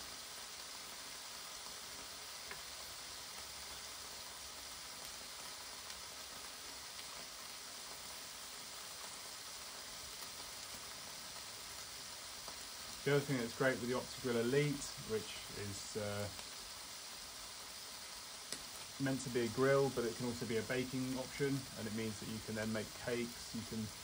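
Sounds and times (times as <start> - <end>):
meat sizzling on a grill: 0.0 - 24.0
faint pops: 18.5 - 18.8.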